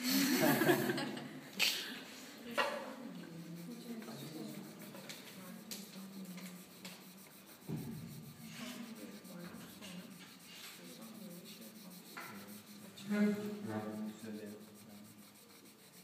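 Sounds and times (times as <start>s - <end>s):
fingers scuffing on paper: 3.2s - 16.0s.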